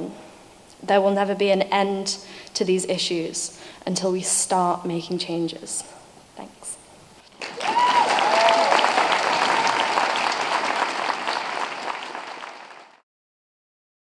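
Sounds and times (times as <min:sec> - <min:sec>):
crowd applauding: 0:07.3 - 0:13.0
voices whooping: 0:07.4 - 0:10.0.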